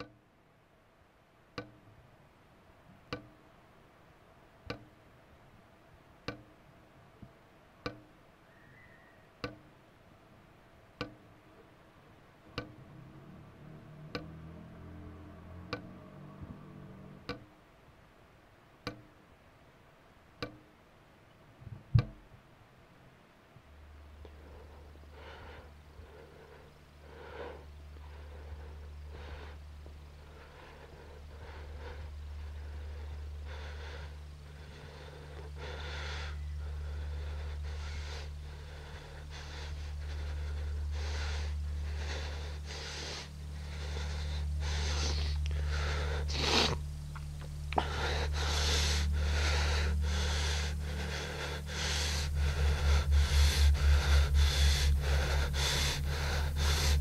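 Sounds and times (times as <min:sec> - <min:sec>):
low drone: 0:12.2 - 0:17.6, 0:23.7 - 0:57.0
man breathing heavily: 0:24.2 - 0:57.0.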